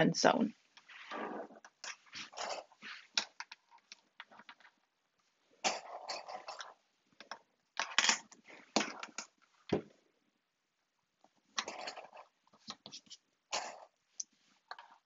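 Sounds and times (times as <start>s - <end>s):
fabric rustling: 0.8s - 3.2s.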